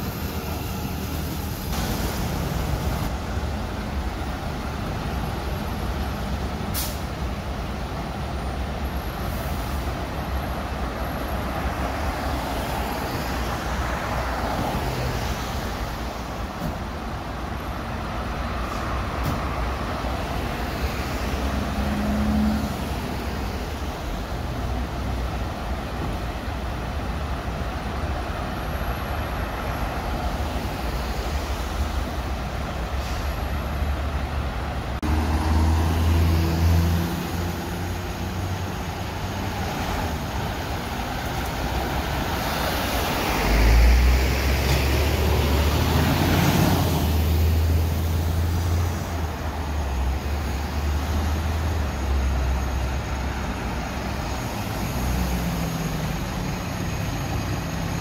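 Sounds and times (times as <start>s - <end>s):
diesel engines idling: 0.0s - 58.0s
road traffic passing: 0.0s - 58.0s
engine revving deeper: 35.0s - 38.0s.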